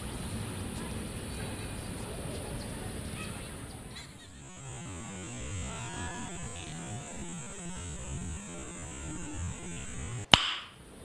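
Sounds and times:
background hum: 3.7s - 10.4s.

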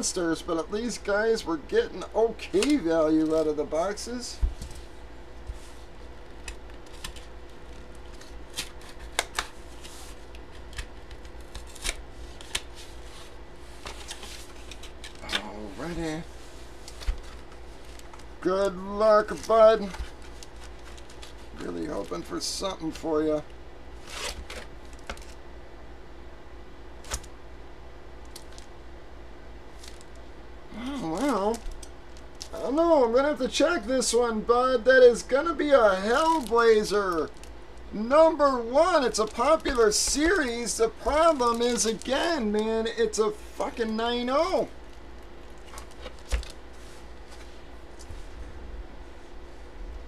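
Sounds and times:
steady low hum: 0.0s - 50.0s
cardboard rustling and scraping: 4.4s - 18.4s, 19.1s - 22.3s, 24.0s - 25.4s.

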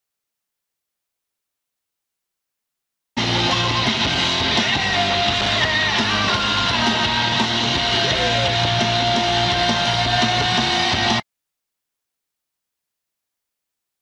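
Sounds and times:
rock music with guitar: 3.2s - 11.2s.

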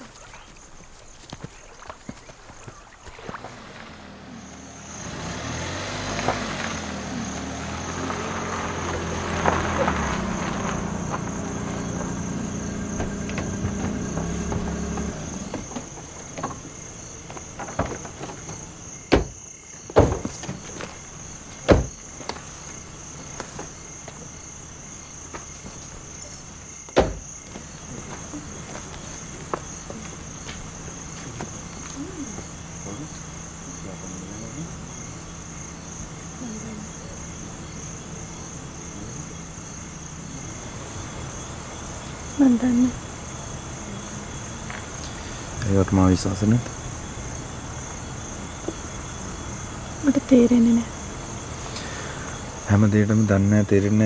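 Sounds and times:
crickets chirring: 0.0s - 54.0s
car engine running: 2.6s - 53.8s
car doors shutting: 3.3s - 36.2s.

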